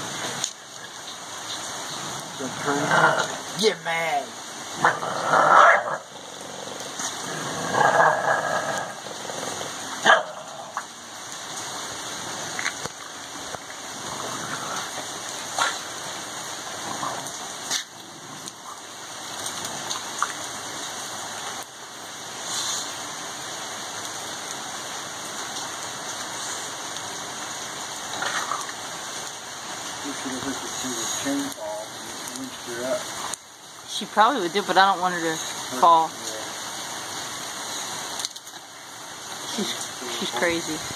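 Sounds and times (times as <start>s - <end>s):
rain pattering: 0.0s - 40.9s
dog growling: 2.0s - 3.4s, 4.8s - 10.9s, 16.8s - 18.8s.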